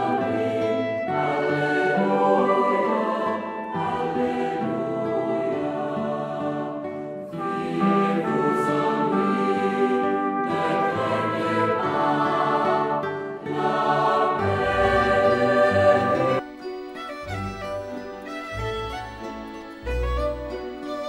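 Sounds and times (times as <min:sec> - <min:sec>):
orchestra playing: 0:00.0 - 0:05.4, 0:07.3 - 0:21.0
choir singing held notes: 0:00.0 - 0:16.4.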